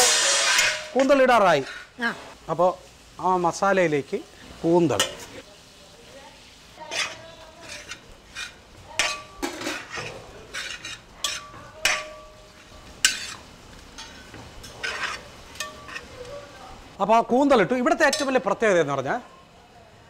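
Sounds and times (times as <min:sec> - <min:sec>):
spoon scraping metal pot: 0:00.0 - 0:02.0, 0:06.8 - 0:16.3.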